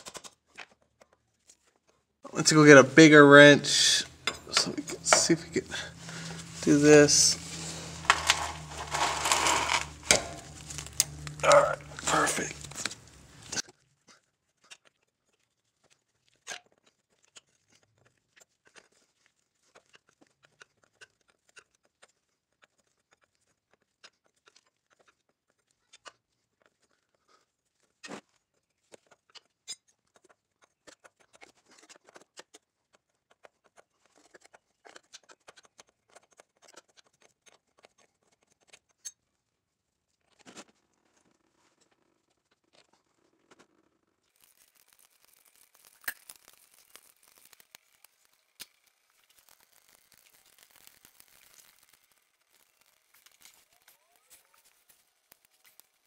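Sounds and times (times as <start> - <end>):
scraping rustle: 3.7 - 13.6.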